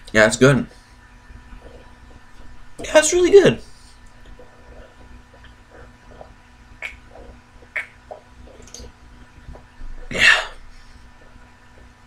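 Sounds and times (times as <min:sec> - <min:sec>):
person gulping a drink: 0:04.2 - 0:09.0.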